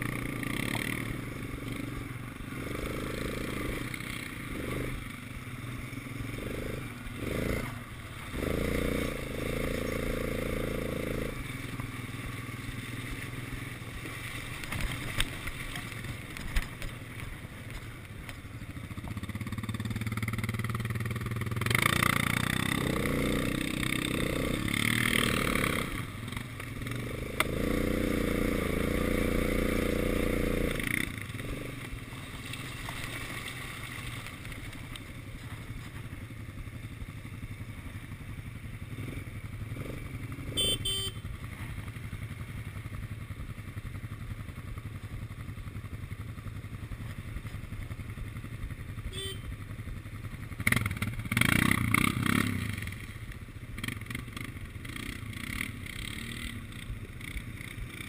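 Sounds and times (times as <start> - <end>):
quad bike engine: 0.0 - 58.0.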